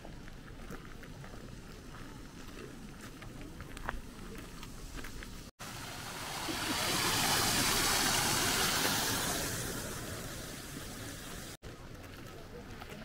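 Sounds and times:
stream over stones: 0:05.6 - 0:11.6.

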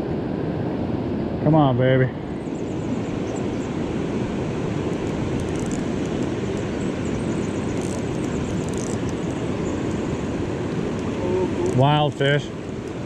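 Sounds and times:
river rapids rushing over rocks: 0:03.7 - 0:13.0.

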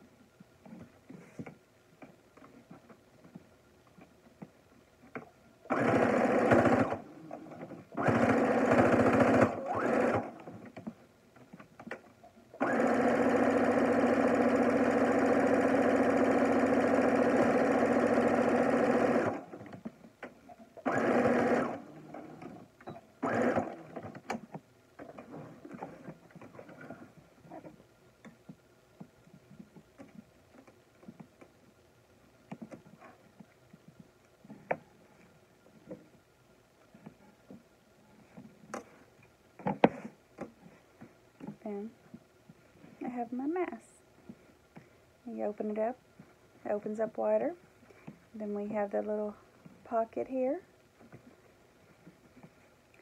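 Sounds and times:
sewing machine stitching: 0:05.7 - 0:07.0, 0:07.9 - 0:10.6, 0:12.6 - 0:19.6, 0:20.8 - 0:22.6, 0:23.2 - 0:24.2.

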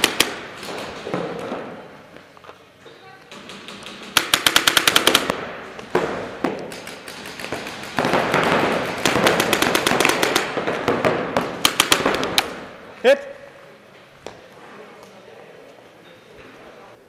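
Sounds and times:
paintball markers firing: 0:00.0 - 0:01.8, 0:03.3 - 0:12.7
paintball impacts: 0:00.0 - 0:02.2, 0:03.3 - 0:12.8.

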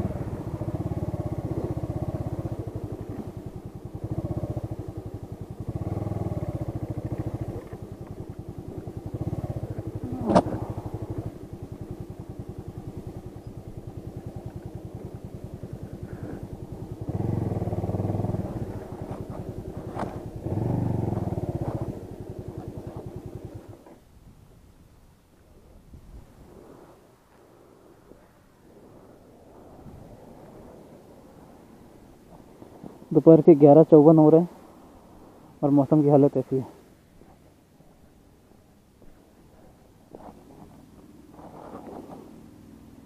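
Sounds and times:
motorcycle engine revving: 0:00.0 - 0:23.9, 0:39.0 - 0:43.0.

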